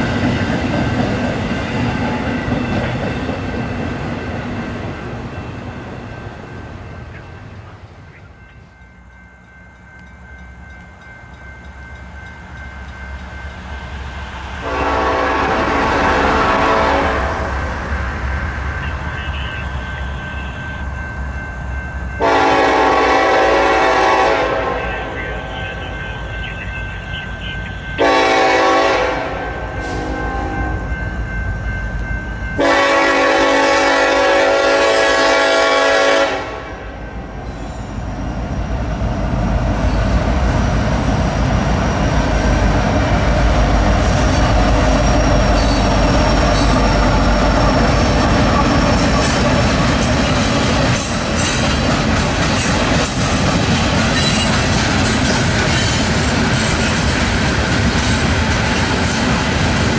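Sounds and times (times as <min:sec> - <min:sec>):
wheels clacking on rails: 0:00.0 - 0:34.1, 0:37.4 - 0:59.9
train rumbling past: 0:00.0 - 0:59.9
locomotive air horn blasts: 0:14.6 - 0:17.6, 0:22.2 - 0:30.8, 0:32.6 - 0:37.0.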